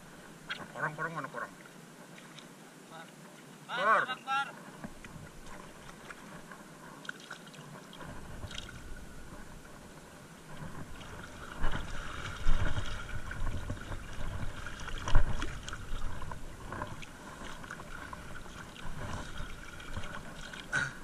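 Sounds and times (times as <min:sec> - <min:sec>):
shallow seawater sloshing: 0:04.6 - 0:21.0.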